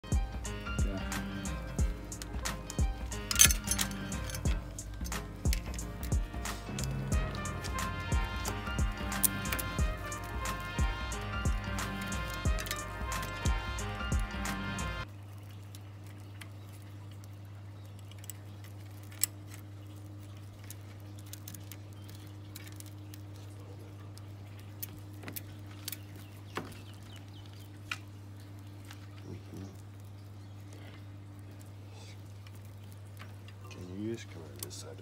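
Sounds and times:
steady low hum: 0:00.0 - 0:15.1
bike chain links clicking: 0:01.1 - 0:14.3.

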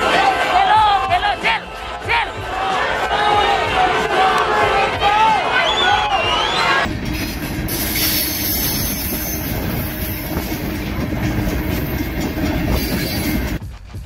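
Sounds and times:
loud rushing and rumbling noise: 0:06.8 - 0:13.7.

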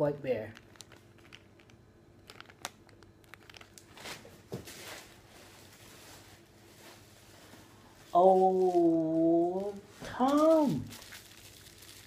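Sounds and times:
plastic bag crinkling: 0:00.5 - 0:04.9, 0:08.2 - 0:12.0.

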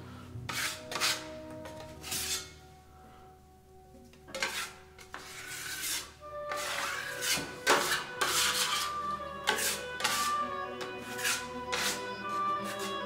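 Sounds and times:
faint background music: 0:00.0 - 0:13.0
tool rubbing on wall: 0:00.5 - 0:01.2, 0:04.3 - 0:10.4, 0:11.0 - 0:13.0.

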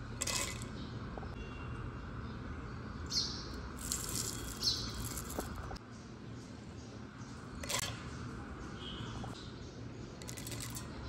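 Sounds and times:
seeds rattling in steel jar: 0:00.2 - 0:00.7, 0:03.8 - 0:05.7, 0:10.2 - 0:11.0.

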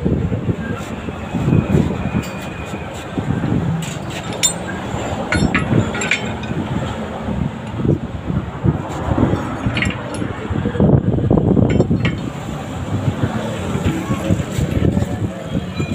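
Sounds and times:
wind buffeting microphone: 0:00.0 - 0:15.9
light metallic clinks: 0:04.0 - 0:06.7, 0:09.4 - 0:10.4.

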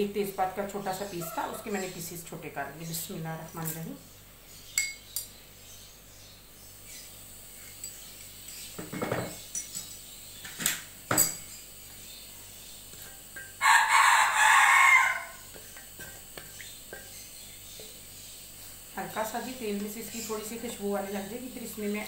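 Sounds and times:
rooster crowing: 0:01.2 - 0:01.8, 0:13.6 - 0:15.5.

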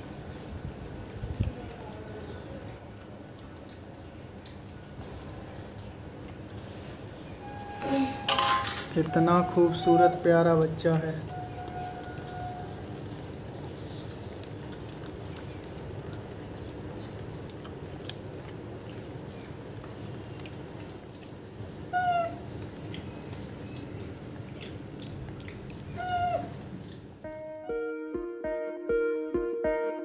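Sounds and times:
low background noise: 0:00.0 - 0:27.5
monkey high-pitched calls: 0:11.3 - 0:12.8, 0:21.9 - 0:22.4, 0:25.9 - 0:26.6.

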